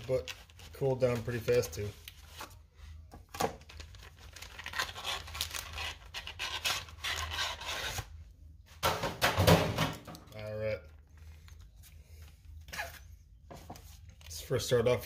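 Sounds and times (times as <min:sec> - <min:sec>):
packaging rustling: 0:03.2 - 0:08.1.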